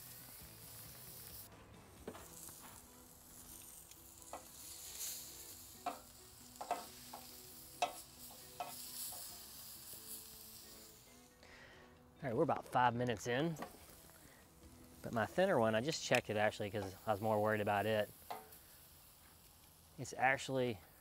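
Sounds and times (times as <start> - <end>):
meat sizzling on grill: 0.0 - 11.8, 12.7 - 21.0
metal tongs clicking on grate: 5.8 - 9.4, 18.3 - 18.6.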